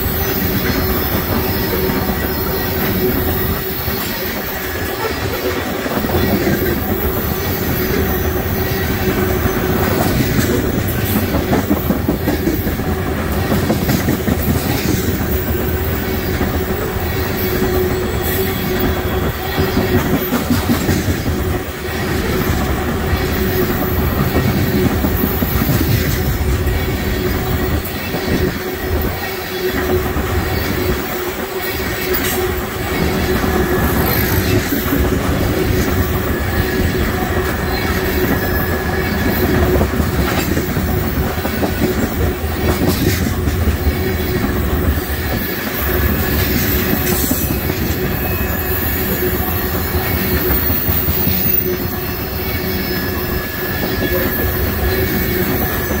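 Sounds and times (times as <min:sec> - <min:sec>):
train wheels rumbling on rails: 0:00.0 - 0:56.0
wheels clacking over rail joints: 0:00.0 - 0:56.0
wheel squeal: 0:43.8 - 0:56.0.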